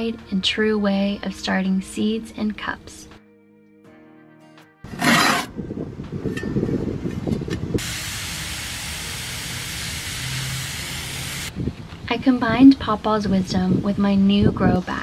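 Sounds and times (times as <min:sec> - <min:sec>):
water mist spray hissing: 0:07.8 - 0:11.5.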